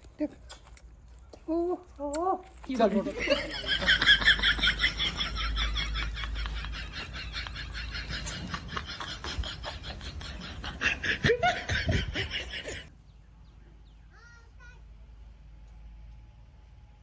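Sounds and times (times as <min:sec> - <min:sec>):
person laughing: 0:03.0 - 0:12.9.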